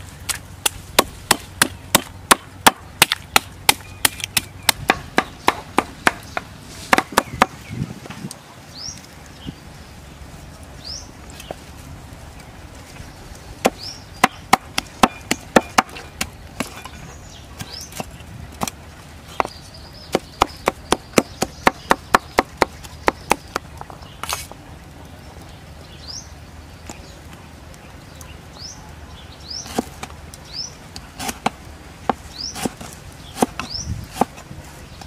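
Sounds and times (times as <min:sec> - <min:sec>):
cleaver chopping on wooden board: 0:00.6 - 0:07.6, 0:13.6 - 0:16.8, 0:19.4 - 0:23.7, 0:31.2 - 0:34.4
bird chirping: 0:03.7 - 0:11.6, 0:12.4 - 0:18.3, 0:19.2 - 0:24.4, 0:32.2 - 0:34.2.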